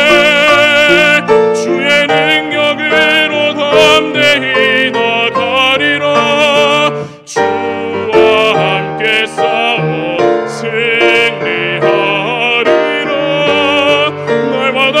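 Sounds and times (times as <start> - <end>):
instrumental accompaniment: 0.0 - 15.0
man singing with vibrato: 0.0 - 15.0
singer breathing: 6.9 - 7.4.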